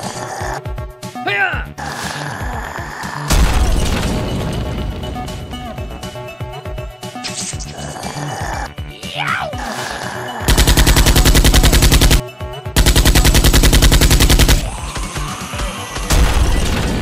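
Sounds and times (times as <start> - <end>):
machine-gun fire bursts: 10.5 - 15.0, 16.1 - 17.0.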